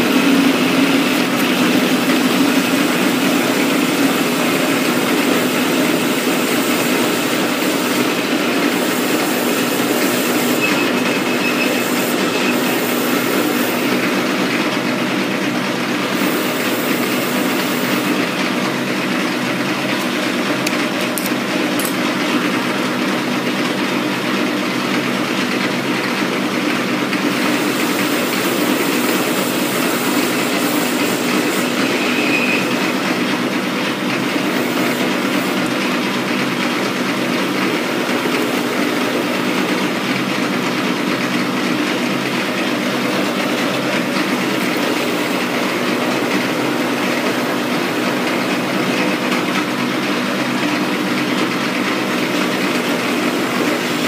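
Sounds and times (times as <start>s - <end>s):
metal lathe droning: 0.0s - 22.3s, 27.0s - 54.0s
bright cutting hiss: 0.8s - 14.0s, 27.3s - 32.8s.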